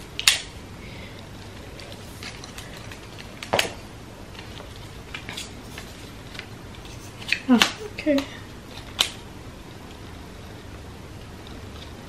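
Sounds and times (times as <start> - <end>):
sharp snap: 0.2 - 0.6.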